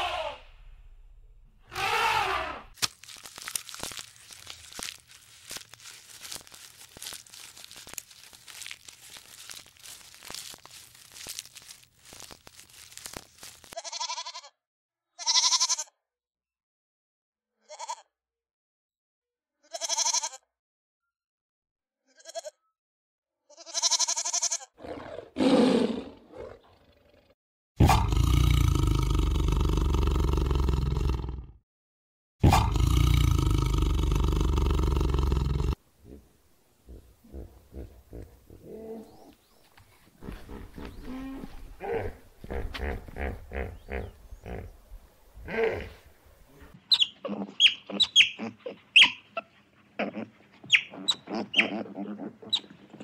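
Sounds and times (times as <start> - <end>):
big cat roaring: 24.8 - 31.6, 32.4 - 36.3, 40.3 - 44.7, 45.4 - 46.0.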